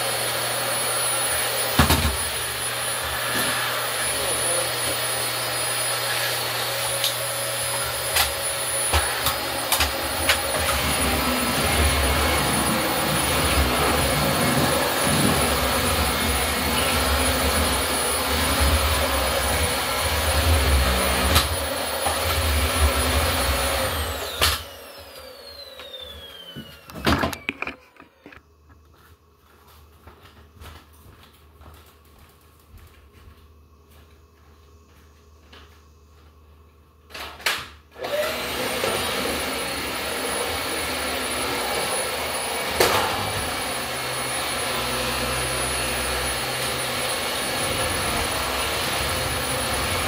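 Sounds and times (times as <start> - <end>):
vacuum cleaner whining: 0.0 - 29.3, 33.6 - 50.0
vacuum clicks and knocks: 26.7 - 28.4.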